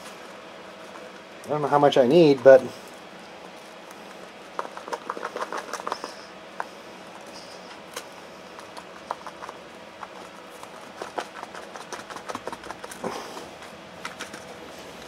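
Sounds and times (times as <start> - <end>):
box of powder shaken: 4.4 - 6.3, 8.5 - 14.7.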